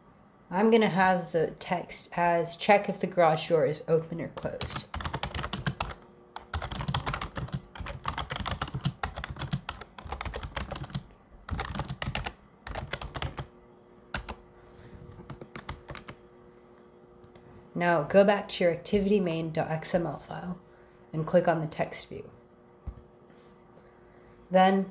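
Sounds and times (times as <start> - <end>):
typing on a keyboard: 4.4 - 13.5, 14.1 - 14.4, 15.1 - 16.2.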